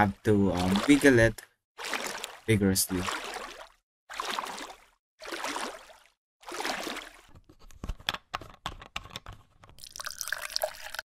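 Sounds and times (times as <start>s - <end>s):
liquid sloshing in plastic basin: 1.8s - 7.5s.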